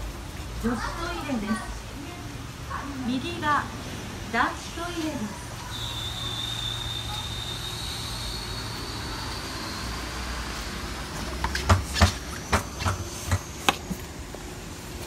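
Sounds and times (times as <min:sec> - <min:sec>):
steady rain hiss: 0:00.0 - 0:11.4
faint high whine: 0:05.5 - 0:11.4.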